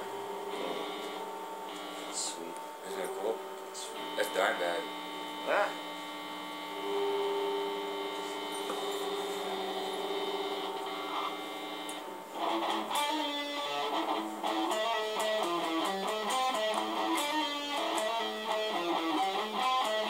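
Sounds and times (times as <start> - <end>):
electrical hum: 0.0 - 20.0
plucked guitar music: 8.3 - 20.0.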